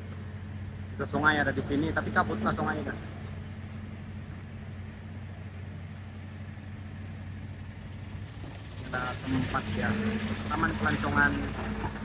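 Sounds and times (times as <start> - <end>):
engine idling hum: 0.0 - 12.0
river water rushing: 8.5 - 12.0.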